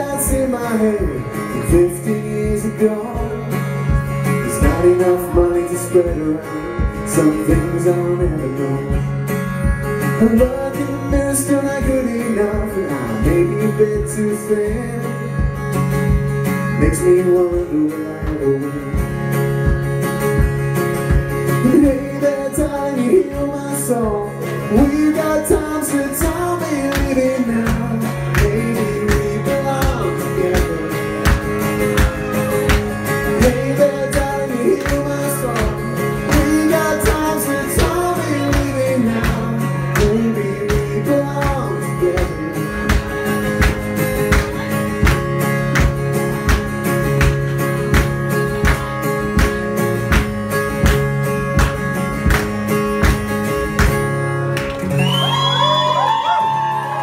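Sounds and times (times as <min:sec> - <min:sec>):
man singing: 0:00.0 - 0:09.3, 0:10.0 - 0:15.6, 0:16.6 - 0:19.3, 0:21.5 - 0:32.5, 0:33.1 - 0:43.2
acoustic guitar strumming: 0:00.0 - 0:57.0.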